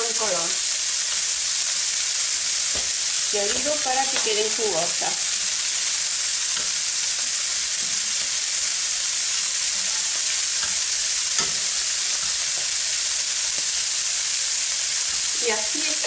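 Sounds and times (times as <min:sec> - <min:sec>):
prawns sizzling in oil: 0:00.0 - 0:16.0
spatula scraping and tapping pan: 0:06.5 - 0:08.4, 0:09.7 - 0:12.8.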